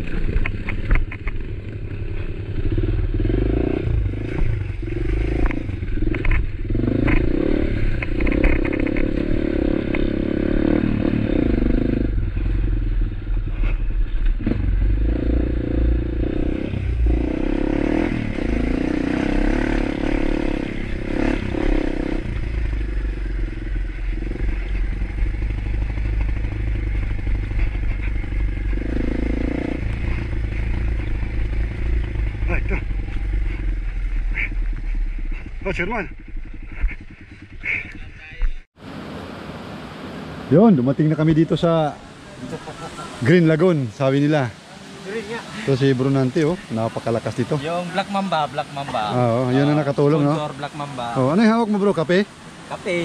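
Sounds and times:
motorcycle engine running: 0.0s - 38.7s.

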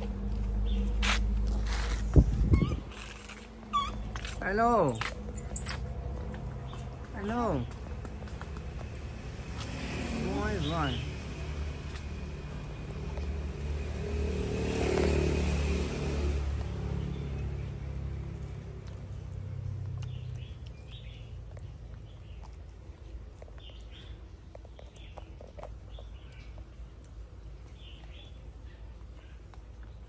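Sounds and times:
low motor rumble: 0.0s - 9.6s.

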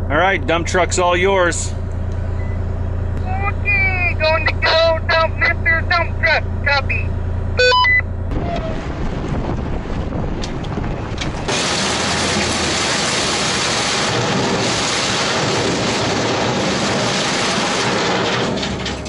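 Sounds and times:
truck rumbling: 0.0s - 19.0s
wind buffeting microphone: 8.3s - 11.5s.

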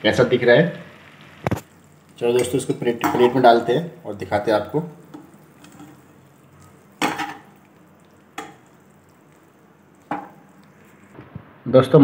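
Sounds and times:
metal spoon clinking on pan: 2.4s - 3.4s, 7.0s - 7.6s, 8.3s - 8.8s, 10.0s - 10.4s.

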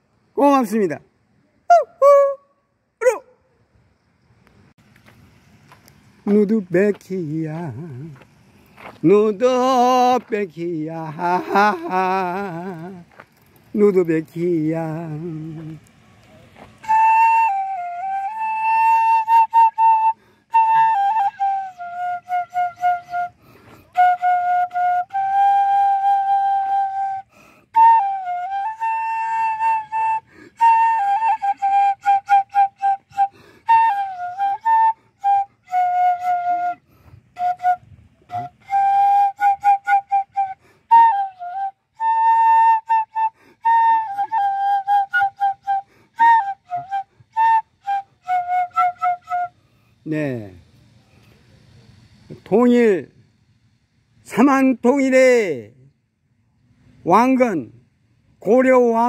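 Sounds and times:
bamboo flute melody: 1.5s - 4.1s, 5.0s - 55.1s, 56.8s - 59.0s
flute player breaths: 20.2s - 20.5s, 23.3s - 24.0s, 27.2s - 27.8s, 30.2s - 30.6s, 33.3s - 33.7s, 36.8s - 37.4s, 40.6s - 40.9s, 43.3s - 43.6s, 45.8s - 46.2s, 49.5s - 50.1s, 50.8s - 52.3s.

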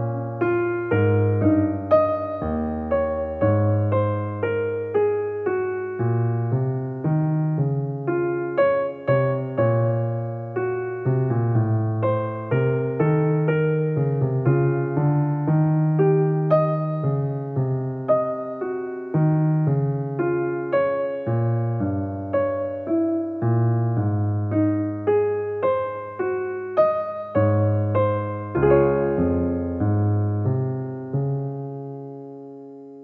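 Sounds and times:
solo piano music: 0.0s - 33.0s.

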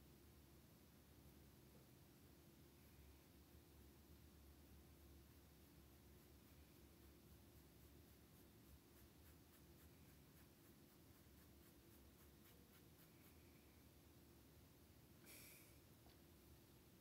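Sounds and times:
low room hum: 0.0s - 17.0s
paintbrush scratching on canvas: 5.7s - 13.6s.

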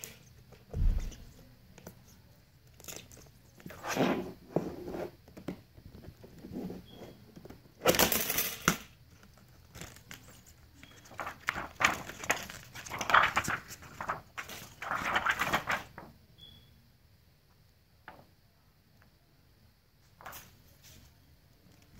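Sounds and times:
plastic films crinkling: 9.1s - 16.0s.

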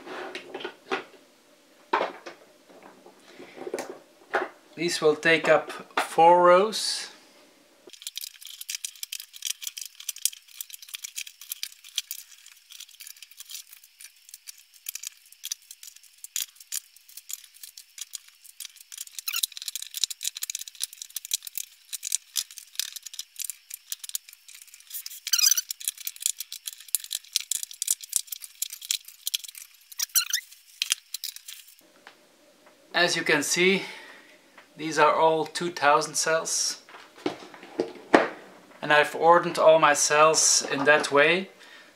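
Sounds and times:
battery cells clicking and rattling: 7.9s - 31.8s.

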